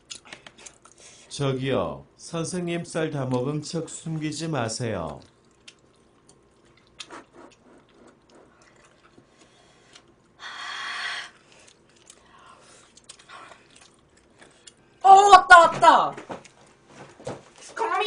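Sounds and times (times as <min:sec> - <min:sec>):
chewing: 0:05.0 - 0:10.4, 0:11.3 - 0:15.0.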